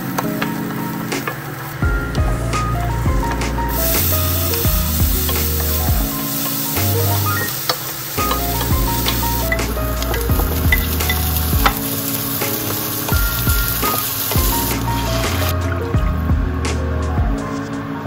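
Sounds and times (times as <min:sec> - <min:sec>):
background music: 0:00.0 - 0:18.0
onion and garlic sizzling in a pan: 0:00.3 - 0:02.5, 0:03.3 - 0:15.6
wooden spatula tapping a pan: 0:07.7 - 0:11.8.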